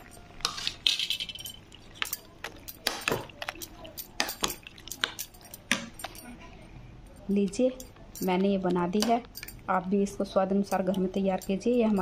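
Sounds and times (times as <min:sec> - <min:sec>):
steel spoon clinking against bowl: 0:00.0 - 0:06.3.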